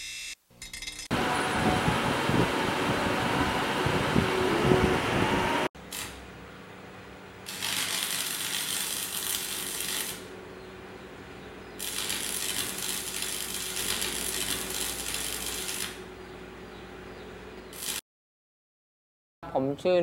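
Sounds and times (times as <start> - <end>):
welding arc crackling and sizzling: 5.8 - 6.2, 7.4 - 10.3, 11.8 - 16.0, 17.7 - 18.0.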